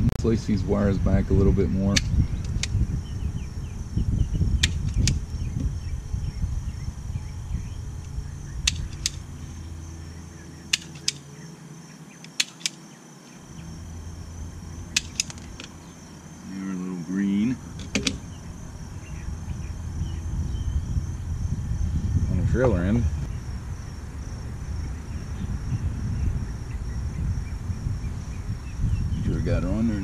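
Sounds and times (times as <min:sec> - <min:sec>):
low rumble: 0:00.0 - 0:12.2, 0:13.2 - 0:30.0
wire stripper clicks: 0:01.9 - 0:02.8, 0:04.6 - 0:05.2, 0:08.0 - 0:09.3, 0:10.7 - 0:11.3, 0:12.2 - 0:12.8, 0:14.9 - 0:15.8, 0:17.8 - 0:18.3.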